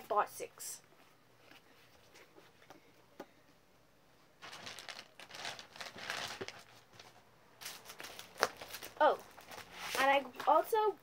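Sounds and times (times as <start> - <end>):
rustling and crinkling: 4.3 - 10.8.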